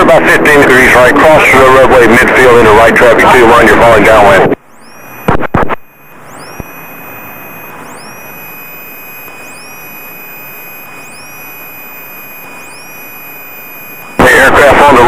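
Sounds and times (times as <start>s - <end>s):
radio clicks: 4.5s - 14.3s.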